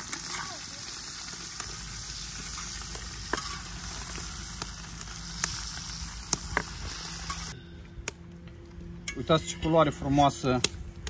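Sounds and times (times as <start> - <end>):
broth boiling and bubbling: 0.0 - 7.6.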